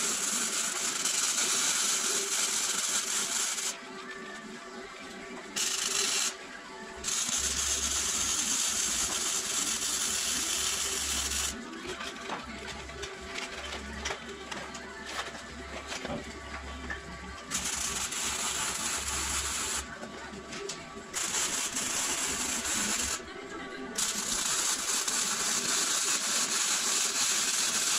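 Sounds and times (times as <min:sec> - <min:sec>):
welding arc crackling and hissing: 0:00.0 - 0:03.8, 0:07.0 - 0:11.6, 0:17.5 - 0:19.9, 0:21.2 - 0:23.2, 0:24.0 - 0:27.9.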